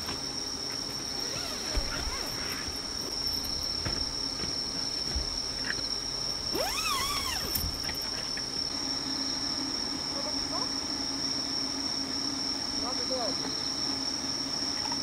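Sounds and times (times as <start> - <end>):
crickets trilling: 0.0 - 15.0
short wavering whine: 6.5 - 10.0.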